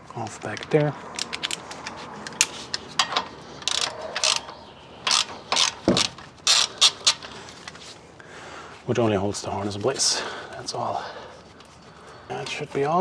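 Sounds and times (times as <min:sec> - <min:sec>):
ratchet wrench clicking: 0:02.4 - 0:07.3.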